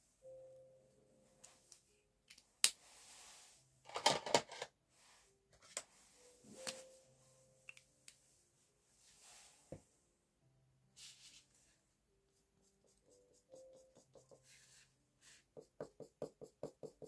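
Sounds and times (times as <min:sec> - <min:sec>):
pens clicking and clattering: 0:03.9 - 0:04.7.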